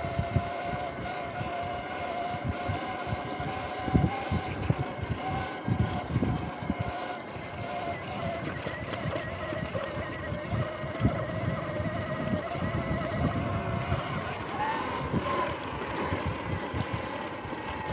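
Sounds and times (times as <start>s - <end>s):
electric bike motor whining: 0.0s - 17.9s
wind buffeting microphone: 0.0s - 17.9s.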